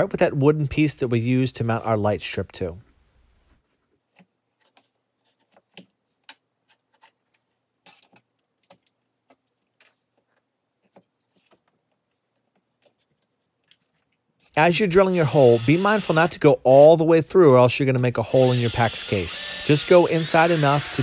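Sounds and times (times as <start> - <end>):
faint clicks and taps: 4.1 - 14.5.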